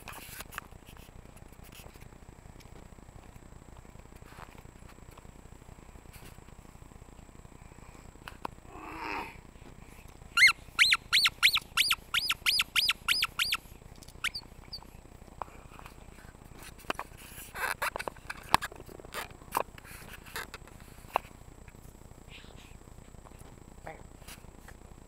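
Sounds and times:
high squeaks: 10.4 - 13.6, 14.2 - 14.8.

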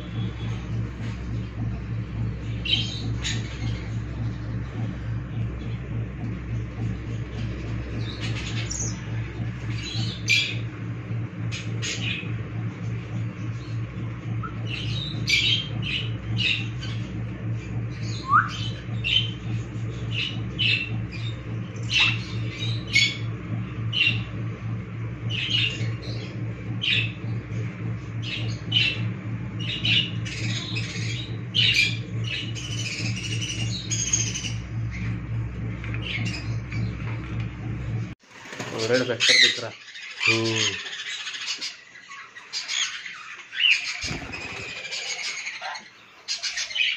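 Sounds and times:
steady low hum: 0.0 - 46.9
parrots squawking and chirping: 38.4 - 46.9.

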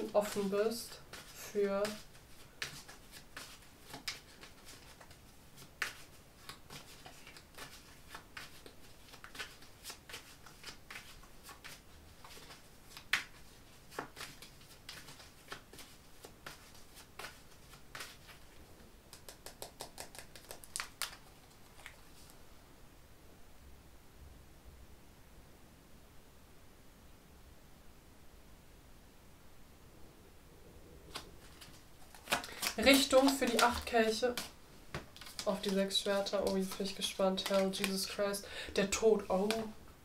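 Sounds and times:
cards being shuffled: 0.0 - 22.4, 31.1 - 39.8.

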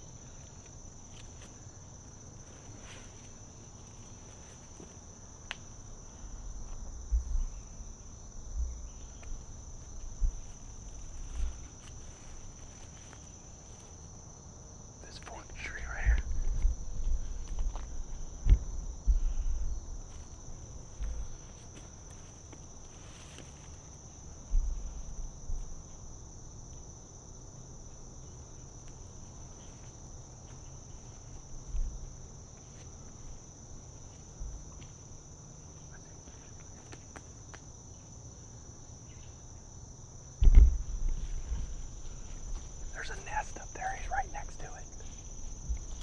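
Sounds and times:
high-pitched insect chorus: 0.0 - 46.0
low thumps: 18.3 - 19.8, 40.4 - 42.9.

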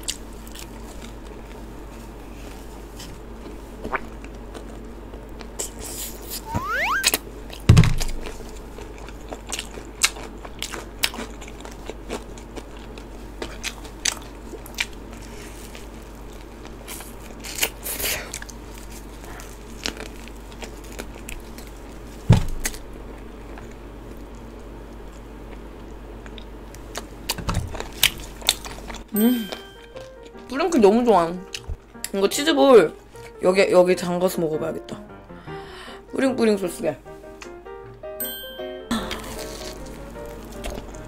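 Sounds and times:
crunching fried chicken crust: 0.0 - 6.2, 7.6 - 29.1.

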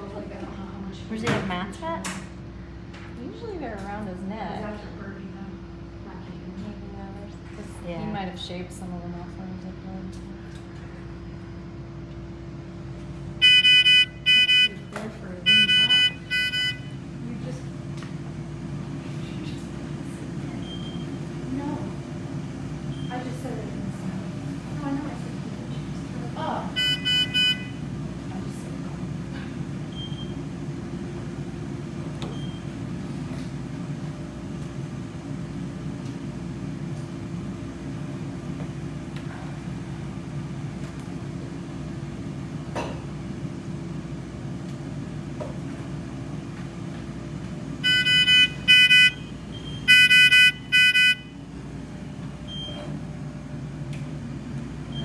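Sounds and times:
low equipment hum: 0.0 - 55.0
patient monitor alarm beeps: 13.4 - 17.0, 20.6 - 21.1, 26.7 - 27.8, 29.9 - 30.4, 47.8 - 51.4, 52.5 - 52.9.

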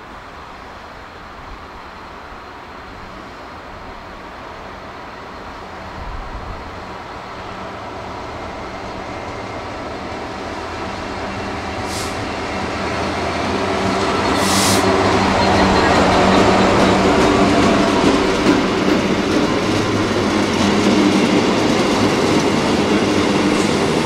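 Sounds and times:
diesel locomotive engine drone: 0.0 - 24.0
short high hisses: 11.8 - 12.4, 14.4 - 15.0.

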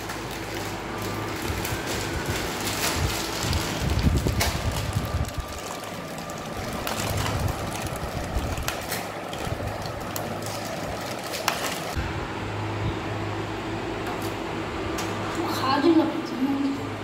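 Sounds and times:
foil packet crinkling: 0.0 - 12.0
snack sticks rustling and crackling: 0.0 - 12.0.

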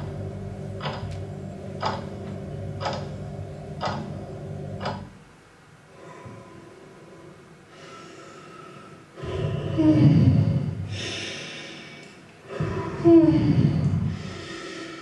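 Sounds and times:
faint steady tones: 0.0 - 9.8
woman vocalising into microphone: 9.2 - 10.7, 12.6 - 14.0.

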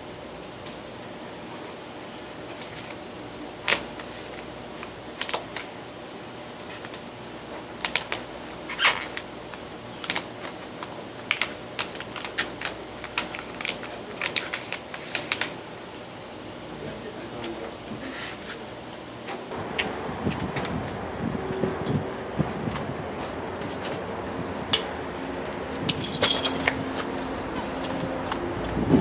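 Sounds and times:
steady room hum: 0.0 - 29.0
vinyl sheet clicks and crackles: 3.6 - 5.7, 7.8 - 15.6.

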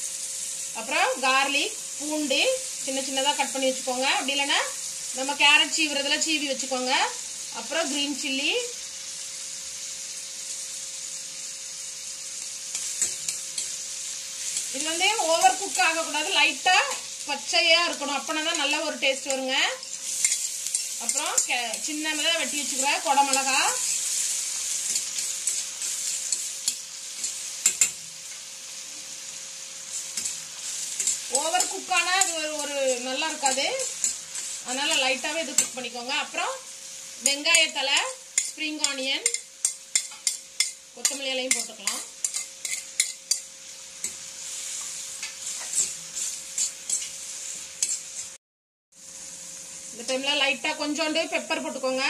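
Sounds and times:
vegetables sizzling in oil: 0.0 - 52.0
spoon scraping a pan: 12.4 - 17.2, 17.8 - 29.3, 29.9 - 36.2, 37.1 - 48.4.

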